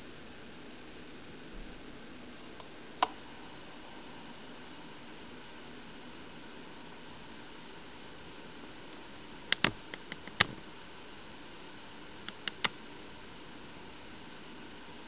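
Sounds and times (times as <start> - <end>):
faint hiss: 0.0 - 15.0
sharp ticks: 12.3 - 12.7.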